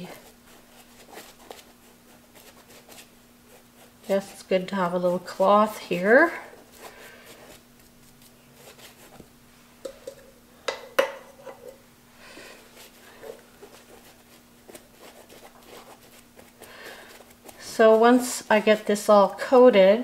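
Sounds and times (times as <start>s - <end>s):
paintbrush dabbing and brushing: 12.7s - 19.4s.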